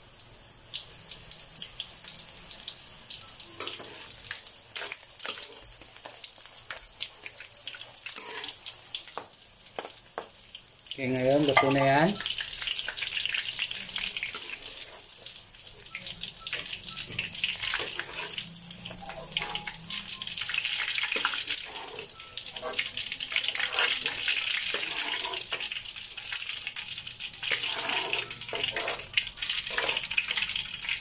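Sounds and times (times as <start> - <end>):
fish deep-frying in oil: 0.0 - 31.0.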